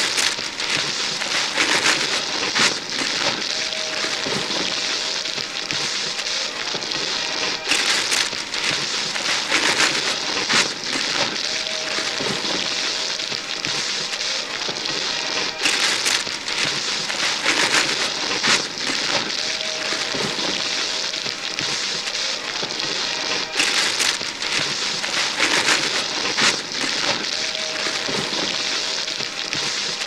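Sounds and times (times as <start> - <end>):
paper rustling: 0.0 - 30.0
wrapping paper tearing: 0.0 - 30.0.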